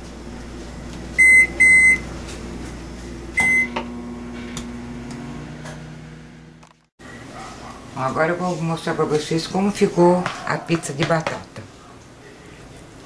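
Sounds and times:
microwave oven humming: 0:00.0 - 0:07.9
microwave keypad beeps: 0:01.2 - 0:02.0, 0:03.4 - 0:03.8.

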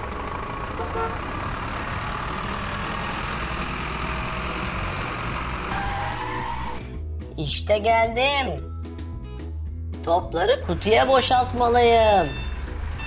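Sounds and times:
truck engine idling: 0:00.0 - 0:06.9, 0:11.1 - 0:13.0.

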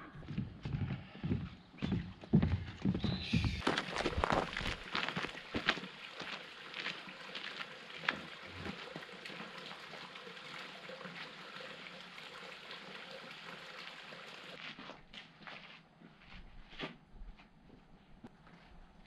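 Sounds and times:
footsteps on dirt trail: 0:00.2 - 0:08.2
flowing water: 0:03.4 - 0:14.8.

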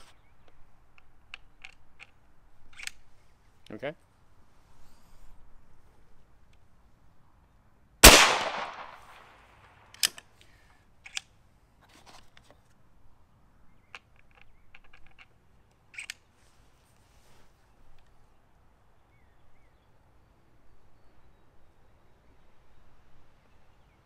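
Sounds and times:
rifle bolt metallic clicks: 0:00.5 - 0:03.8, 0:08.0 - 0:10.4, 0:11.0 - 0:11.3, 0:13.8 - 0:16.2
air rifle shot: 0:08.0 - 0:09.5.

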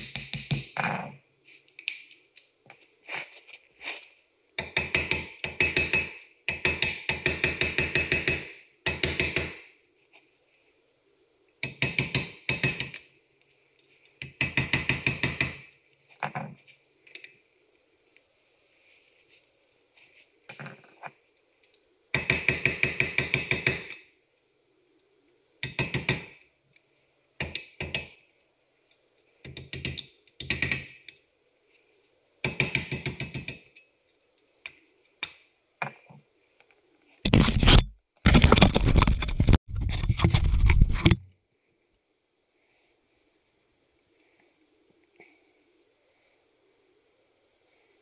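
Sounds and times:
rapid metal-on-metal tool impacts: 0:04.6 - 0:09.6.

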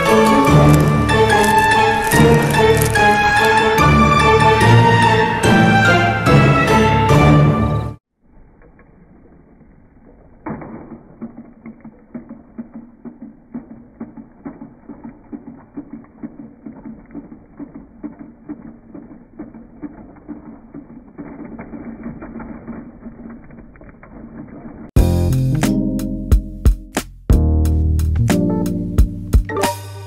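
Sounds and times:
toy train motor whirring: 0:00.0 - 0:03.9
clicking of gears and wheels: 0:00.0 - 0:05.1, 0:08.3 - 0:25.0.

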